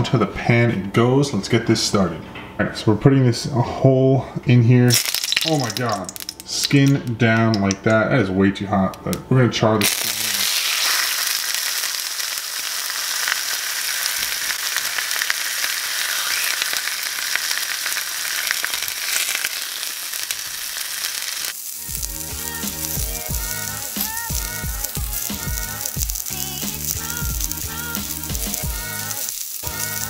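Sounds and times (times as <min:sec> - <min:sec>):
fish sizzling in a skillet: 0:04.9 - 0:06.4, 0:09.8 - 0:30.0
background music with a beat: 0:21.8 - 0:30.0.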